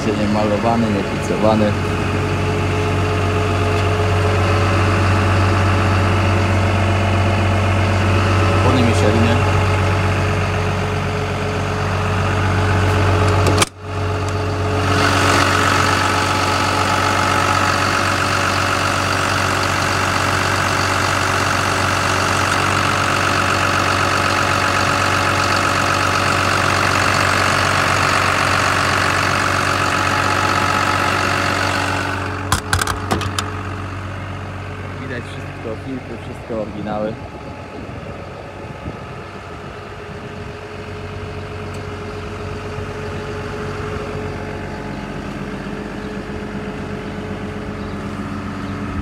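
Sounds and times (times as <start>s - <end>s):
diesel engine idling: 0.0s - 49.0s.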